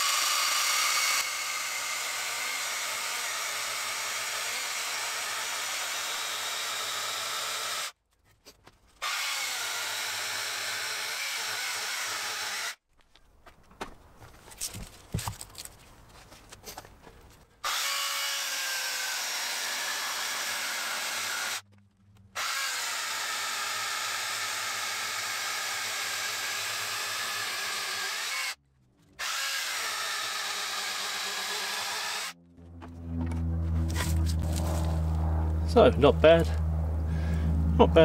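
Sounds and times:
chainsaw cutting log: 0.0 - 8.0, 9.0 - 12.8, 17.6 - 21.6, 22.3 - 28.6, 29.2 - 32.4.

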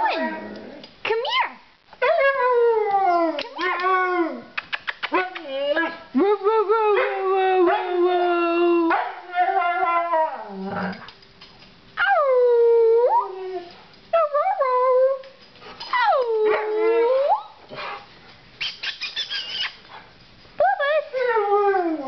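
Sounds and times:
husky howling: 7.0 - 11.0
dog yipping: 18.6 - 19.8.

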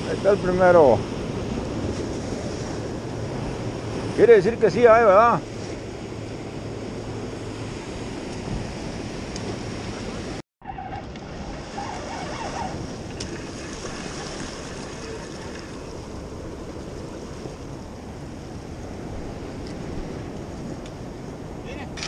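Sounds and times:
wind buffeting microphone: 0.0 - 22.0
sea waves breaking on rocks: 11.0 - 22.0.

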